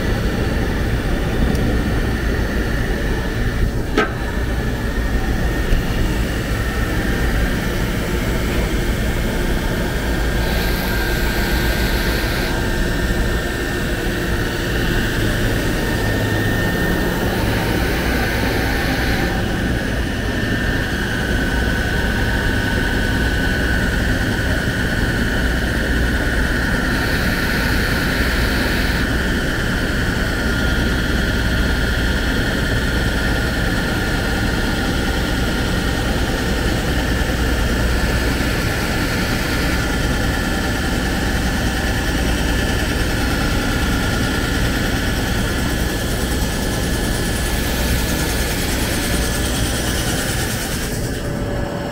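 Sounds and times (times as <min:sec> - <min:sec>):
lathe cutting with high whine: 0:00.0 - 0:51.9.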